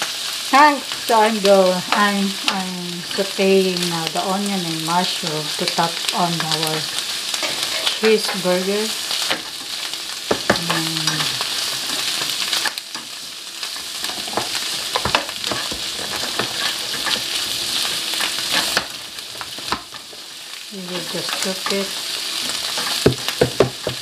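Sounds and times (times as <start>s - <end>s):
vegetables sizzling in a frying pan: 0.0s - 24.0s
spatula scraping a pan: 6.8s - 8.5s, 10.3s - 23.4s.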